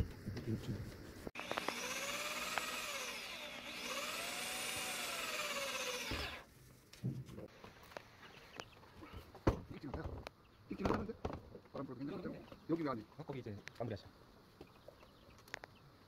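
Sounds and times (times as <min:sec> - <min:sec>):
electric drill motor whining: 0:01.4 - 0:06.5.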